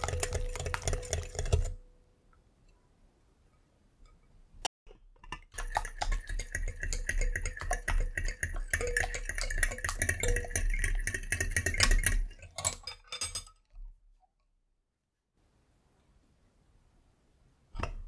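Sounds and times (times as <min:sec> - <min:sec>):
beaters clinking: 0:07.0 - 0:13.6.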